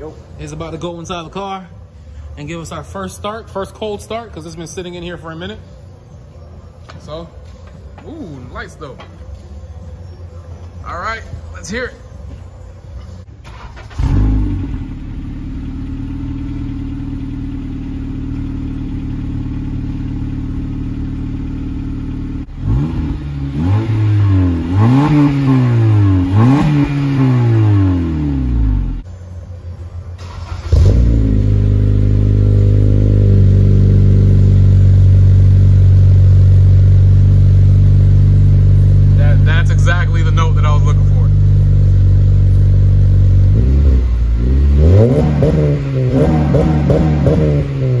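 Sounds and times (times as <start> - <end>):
car engine idling: 0.0 - 48.0
car engine starting: 7.4 - 48.0
car engine revving: 13.3 - 29.5, 30.1 - 48.0.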